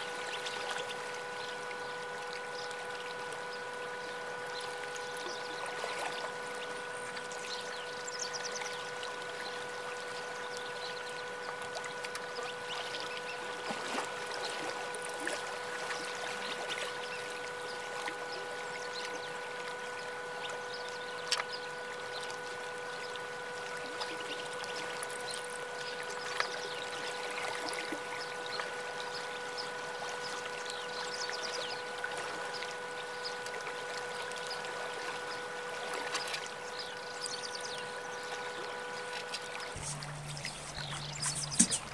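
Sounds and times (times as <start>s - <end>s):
steady hum: 0.0s - 41.9s
sharp click: 40.7s - 41.9s.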